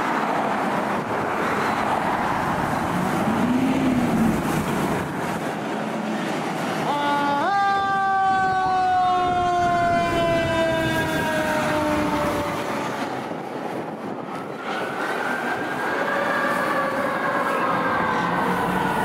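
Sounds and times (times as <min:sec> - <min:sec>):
fire engine multi-tone horn: 0:06.8 - 0:13.1, 0:14.7 - 0:19.0
siren wailing: 0:06.8 - 0:13.2, 0:14.4 - 0:19.0.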